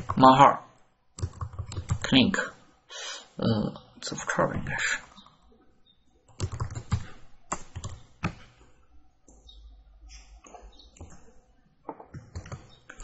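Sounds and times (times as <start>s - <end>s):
keyboard typing: 0.0s - 0.4s, 1.2s - 2.2s, 6.3s - 9.6s, 10.4s - 13.0s.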